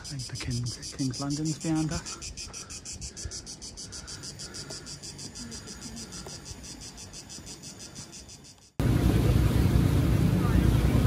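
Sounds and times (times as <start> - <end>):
cicadas buzzing: 0.0 - 8.8.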